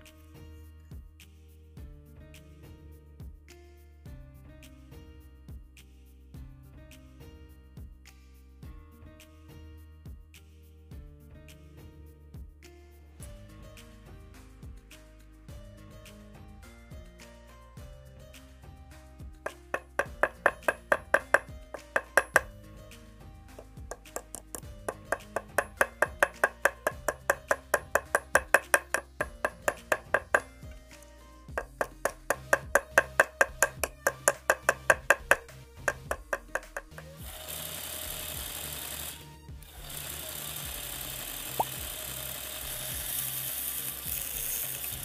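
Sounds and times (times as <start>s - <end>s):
hammer tapping metal: 19.5s - 22.5s, 23.6s - 30.6s, 31.5s - 37.2s
belt sander running: 36.3s - 43.7s.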